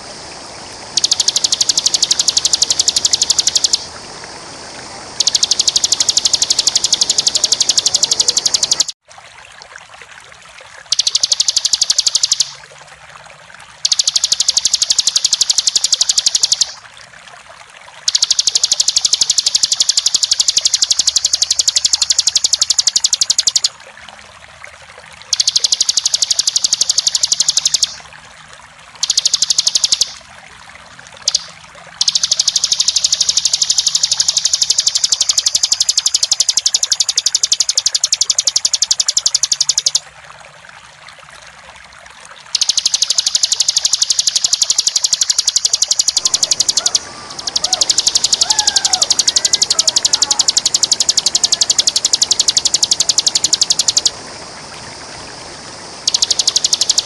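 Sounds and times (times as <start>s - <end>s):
running water: 0.0s - 57.0s
bird singing rapid rattling trill: 0.9s - 3.9s, 5.2s - 9.0s, 10.9s - 12.6s, 13.8s - 16.8s, 18.1s - 23.8s, 25.3s - 28.0s, 29.0s - 30.2s, 31.2s - 40.0s, 42.6s - 54.2s, 56.0s - 57.0s
faint bird chirps: 1.0s - 3.9s, 5.2s - 9.0s, 10.9s - 12.6s, 18.1s - 23.8s, 25.3s - 28.0s, 29.0s - 30.2s, 31.2s - 40.0s, 42.6s - 54.2s, 56.0s - 57.0s.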